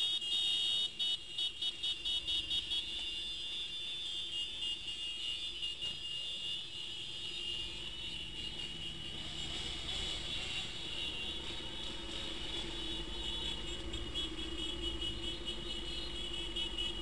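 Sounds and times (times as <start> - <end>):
motorcycles rumbling: 7.0 - 17.0.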